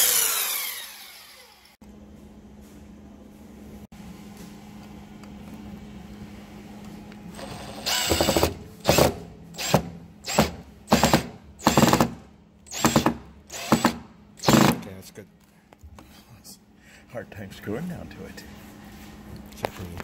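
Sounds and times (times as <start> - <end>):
power drill driving a screw: 0.0 - 1.8, 7.4 - 12.1, 12.7 - 14.8.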